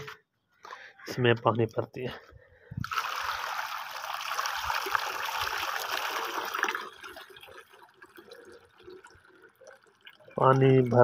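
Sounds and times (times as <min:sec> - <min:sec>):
water pouring into a bowl: 0:02.8 - 0:11.0.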